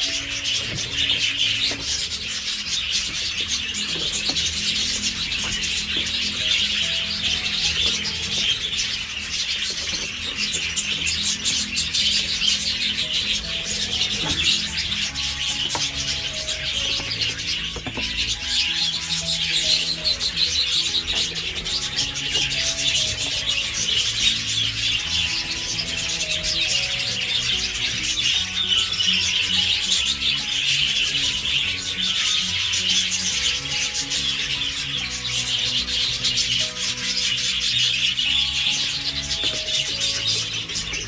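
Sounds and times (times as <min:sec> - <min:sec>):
background music: 0:00.0 - 0:41.0
budgerigars chattering and warbling: 0:00.0 - 0:41.0.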